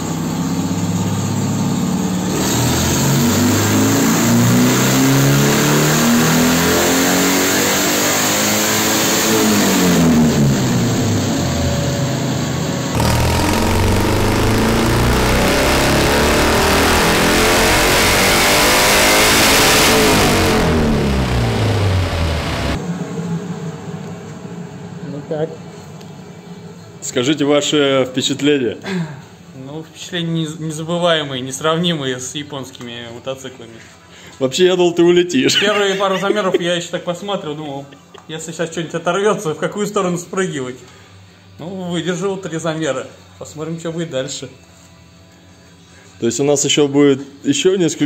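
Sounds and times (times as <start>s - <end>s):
motorcycle engine revving: 0.6s - 12.0s, 12.9s - 22.8s.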